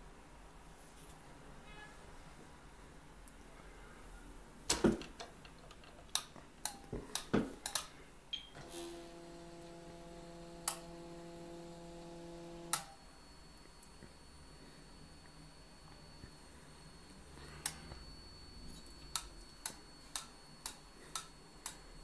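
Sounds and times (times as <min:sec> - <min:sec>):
stepper motor whining: 0:08.6 - 0:12.9.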